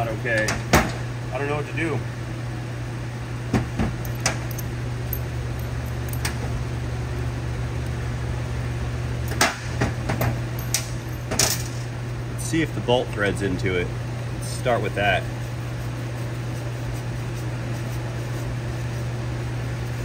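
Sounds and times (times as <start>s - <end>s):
steady low hum: 0.0s - 20.0s
tools clicking and knocking: 4.0s - 6.5s.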